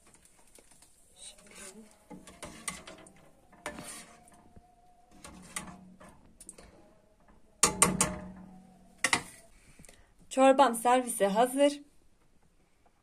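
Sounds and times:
ladle scraping pot: 1.2s - 9.6s.

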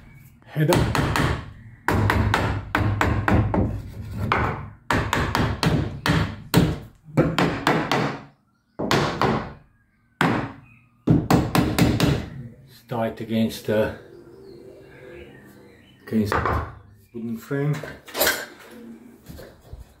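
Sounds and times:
hammer striking wood: 0.7s - 3.7s, 4.3s - 9.6s, 10.2s - 12.3s.

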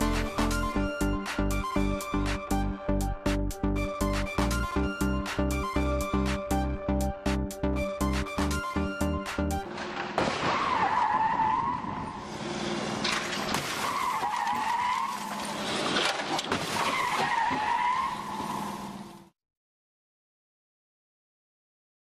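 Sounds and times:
car tyres squealing: 9.7s - 19.3s.

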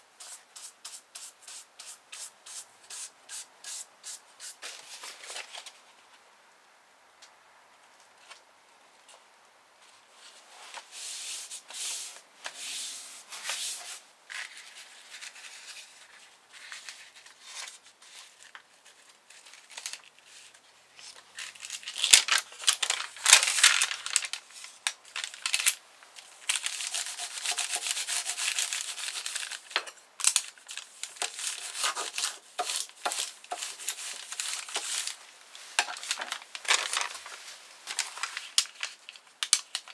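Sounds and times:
paper rustling: 4.6s - 5.9s, 9.8s - 39.9s
folder tool scraping paper: 26.5s - 29.7s, 31.0s - 35.2s.

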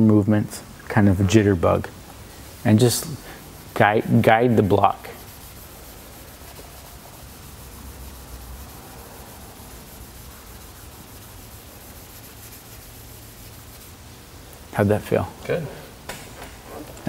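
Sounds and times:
wet sandpaper rubbing: 2.6s - 14.2s.

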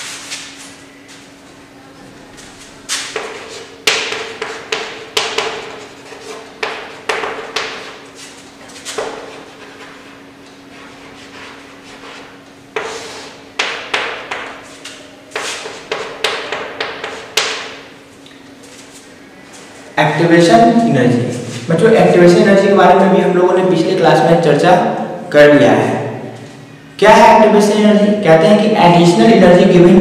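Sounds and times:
chalk writing on chalkboard: 3.0s - 17.7s.

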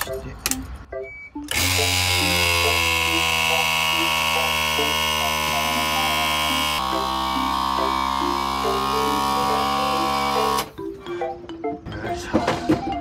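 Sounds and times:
hydraulic pump motor hum: 1.5s - 10.7s.

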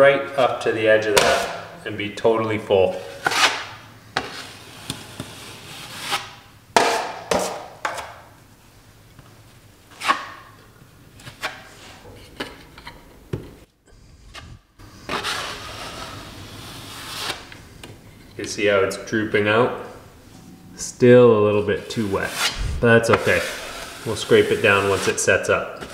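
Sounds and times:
drywall knife scraping compound: 3.0s - 6.4s, 14.3s - 17.6s, 21.8s - 25.9s.

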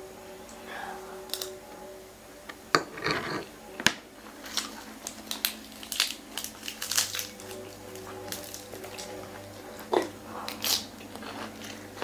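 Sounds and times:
chewing: 4.4s - 12.0s
lettuce leaf crackling: 4.4s - 12.0s.

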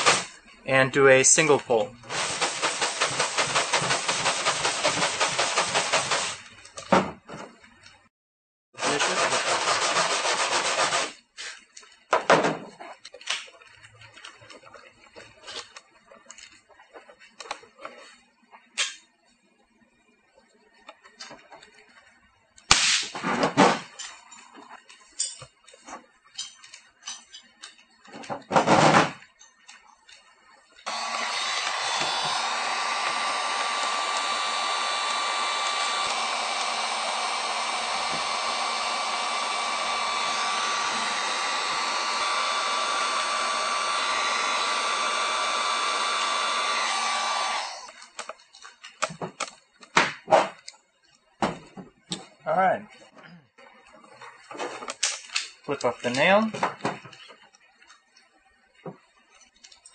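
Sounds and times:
heat gun blowing: 0.0s - 0.4s, 1.3s - 6.5s, 8.8s - 11.2s, 30.9s - 48.0s
loud bursts: 2.1s - 6.4s, 30.9s - 47.8s.

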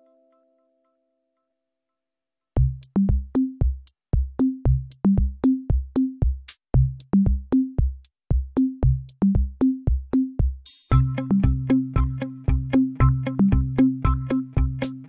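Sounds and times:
electronic music with drum machine: 2.6s - 15.0s.

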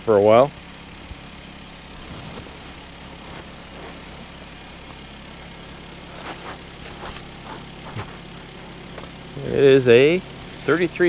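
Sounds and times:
engine humming: 0.0s - 11.0s.

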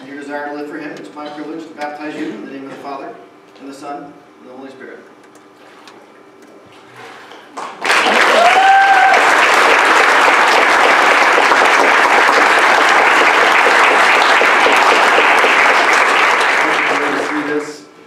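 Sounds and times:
crowd clapping and cheering: 7.6s - 17.7s.

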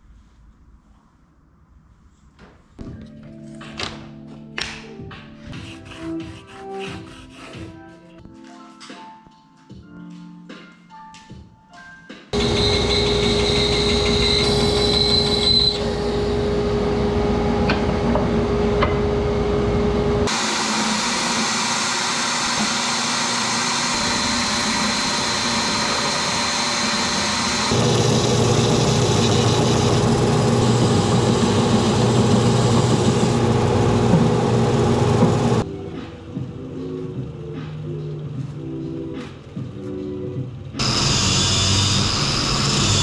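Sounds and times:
oscillating spindle sander: 12.4s - 17.3s, 20.3s - 35.6s, 40.8s - 43.0s
belt sander deep hum: 12.4s - 35.6s
stationary power sander humming: 18.4s - 35.6s, 40.8s - 43.0s.

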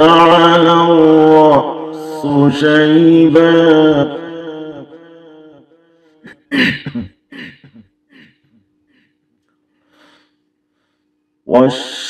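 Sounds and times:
man coughing: 6.2s - 9.2s
breaths and throat noises: 6.2s - 11.2s.

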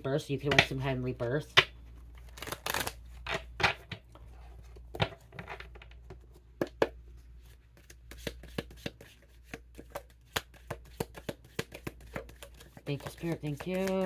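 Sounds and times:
cards being shuffled: 2.1s - 3.8s, 4.5s - 14.0s.

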